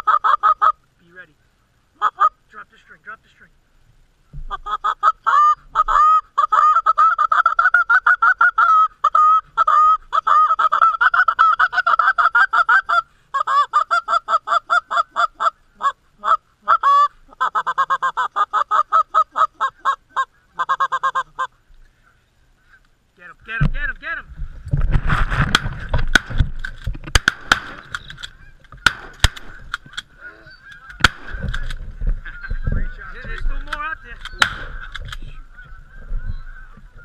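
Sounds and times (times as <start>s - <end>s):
goose honks and clucks: 0.0s - 0.8s, 4.5s - 22.9s, 28.2s - 37.0s.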